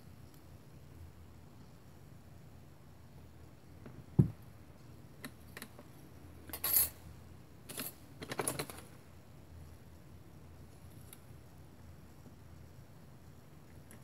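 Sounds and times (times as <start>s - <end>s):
dull knock on cutting mat: 4.2s - 4.4s.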